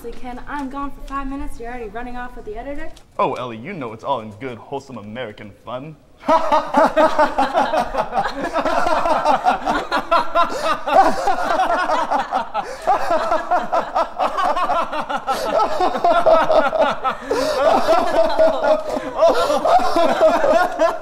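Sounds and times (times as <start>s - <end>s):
group of people laughing: 6.2s - 21.0s.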